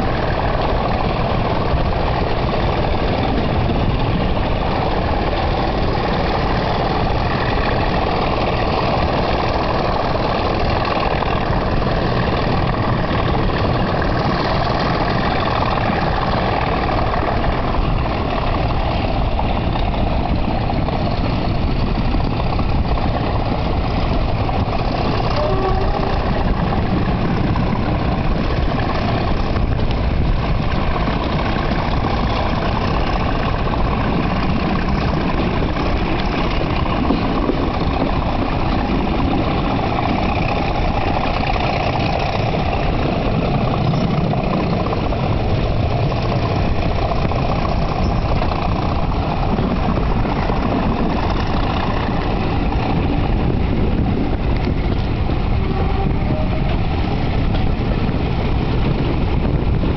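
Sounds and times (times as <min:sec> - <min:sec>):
diesel locomotive engine thrash: 0:00.0 - 0:59.9.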